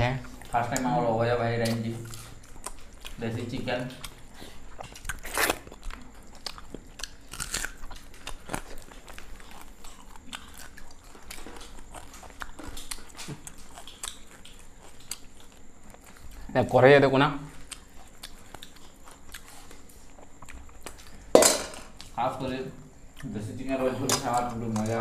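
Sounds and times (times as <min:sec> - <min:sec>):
people chewing: 0:00.0 - 0:25.0.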